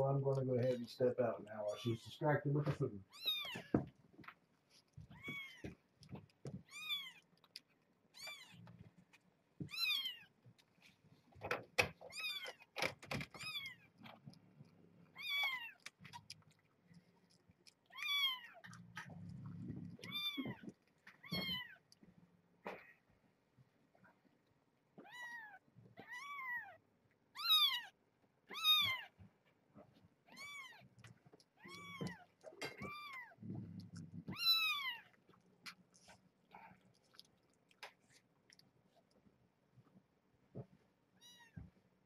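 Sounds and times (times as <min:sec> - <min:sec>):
kittens mewing: 0:05.0 - 0:05.8, 0:15.1 - 0:16.3, 0:17.9 - 0:21.9, 0:31.5 - 0:35.1.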